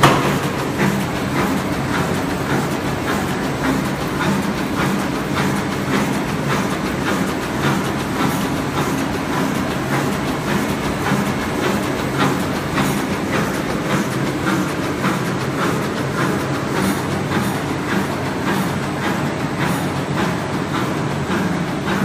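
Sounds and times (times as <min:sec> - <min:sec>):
machine clacking: 0:00.0 - 0:22.0
paper cutting machine hum: 0:00.0 - 0:22.0.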